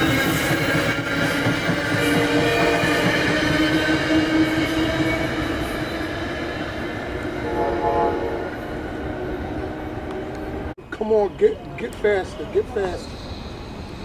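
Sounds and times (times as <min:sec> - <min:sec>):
train wheels on rail: 0:00.0 - 0:07.6
train horn: 0:02.0 - 0:05.6, 0:07.2 - 0:10.6.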